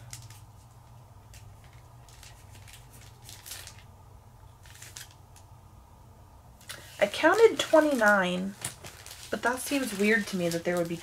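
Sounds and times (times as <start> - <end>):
foil packs crinkling and tapping: 0.0 - 3.9, 6.6 - 11.0
low steady hum: 0.0 - 11.0.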